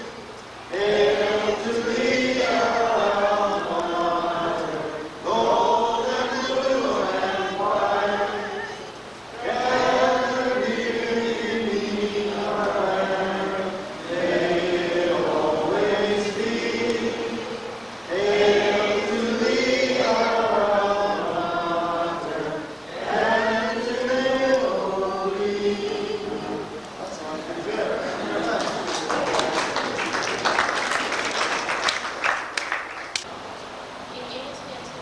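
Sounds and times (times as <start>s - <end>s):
person singing slow song: 0.0s - 27.0s.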